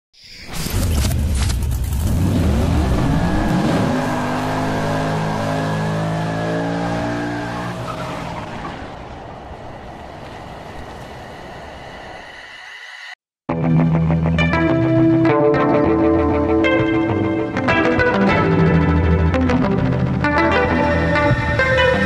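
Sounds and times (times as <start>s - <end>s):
car engine revving hard: 2.0s - 8.9s.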